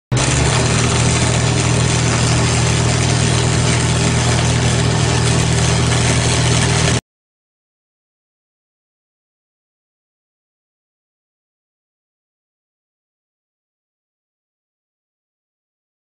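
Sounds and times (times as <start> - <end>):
engine idling: 0.1 - 7.0
loud hiss: 0.1 - 7.0.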